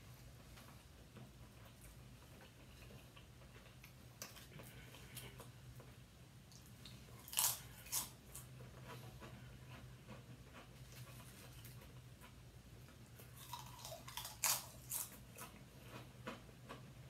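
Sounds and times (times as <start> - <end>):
people chewing: 1.6 - 17.0
loud crisp chip crunches: 7.2 - 8.2, 13.4 - 15.2.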